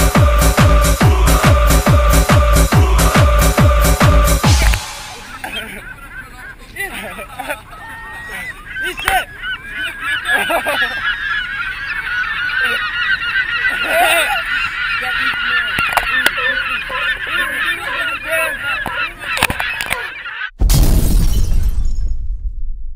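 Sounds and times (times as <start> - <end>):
gulls calling: 0.0 - 20.6
loud crash with low rumble: 20.6 - 22.9.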